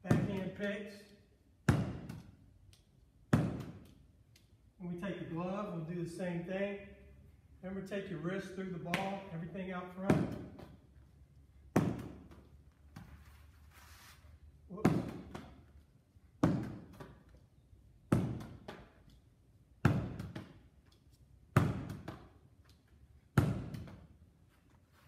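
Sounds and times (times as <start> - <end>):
baseball hitting wall: 0.0 - 0.6, 1.6 - 2.4, 3.2 - 4.0, 8.8 - 11.0, 11.6 - 13.2, 14.7 - 17.3, 18.0 - 19.1, 19.7 - 20.8, 21.4 - 22.6, 23.2 - 24.2
ball smacking leather glove: 1.7 - 2.4, 3.3 - 4.0, 8.8 - 9.3, 10.0 - 11.0, 11.6 - 13.2, 14.7 - 17.4, 18.0 - 19.2, 19.8 - 20.8, 21.5 - 24.2.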